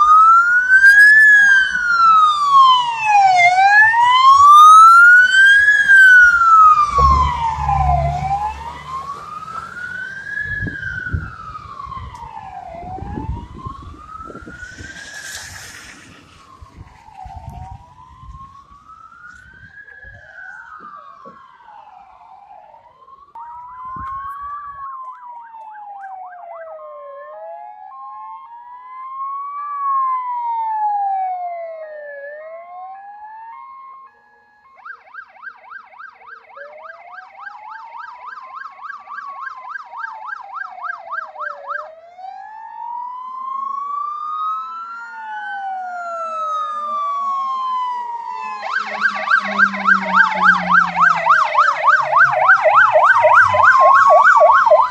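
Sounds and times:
fire engine siren wailing: 0:00.0 - 0:54.9
lower sweeping emergency siren: 0:00.0 - 0:54.9
truck engine rumbling: 0:01.2 - 0:21.5, 0:48.0 - 0:54.9.

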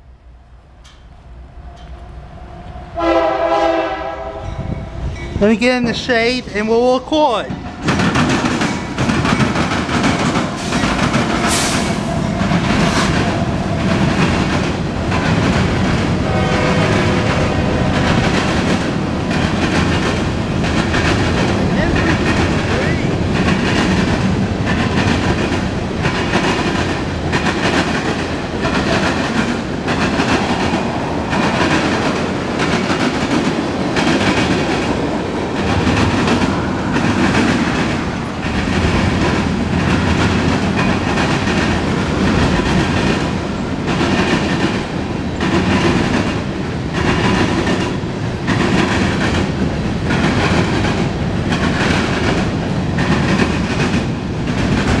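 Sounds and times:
freight train rolling past: 0:00.0 - 0:55.0.

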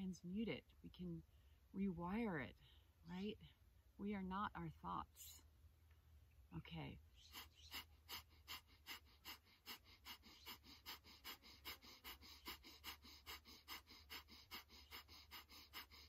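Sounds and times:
woman breathing rapidly: 0:07.2 - 0:16.0.

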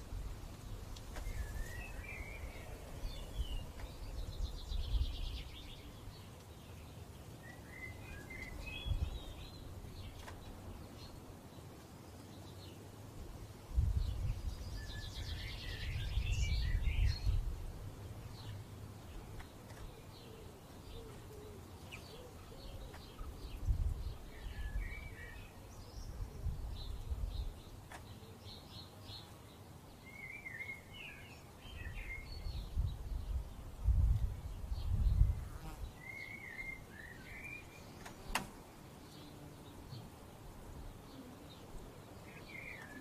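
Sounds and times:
wind noise on microphone: 0:00.0 - 0:05.9, 0:08.4 - 0:10.2, 0:13.2 - 0:17.9, 0:23.2 - 0:27.7, 0:31.7 - 0:36.0
songbirds chirping: 0:00.0 - 0:43.0
sharp click: 0:38.0 - 0:38.6.

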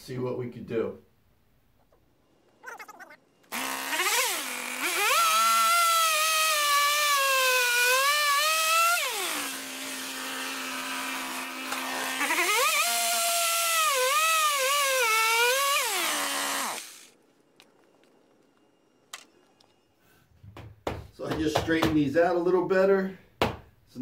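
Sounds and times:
chainsaw cutting log: 0:03.5 - 0:17.2.

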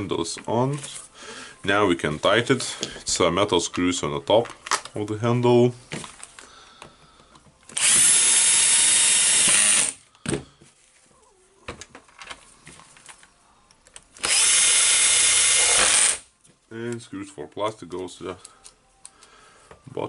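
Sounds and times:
cordless drill driving screws: 0:07.7 - 0:10.0, 0:14.2 - 0:16.2.

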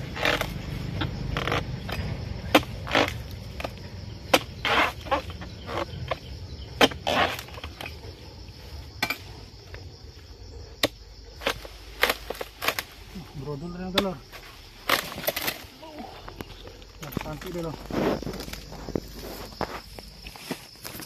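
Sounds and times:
crunching rustle of fronds: 0:11.3 - 0:21.0.

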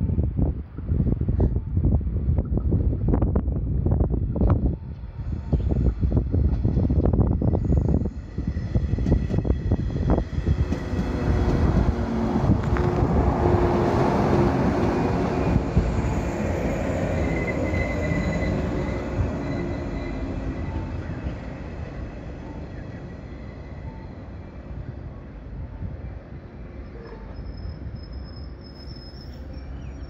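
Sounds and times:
electric train running past: 0:04.1 - 0:30.0
high brake squeal: 0:16.2 - 0:21.0, 0:26.8 - 0:30.0.

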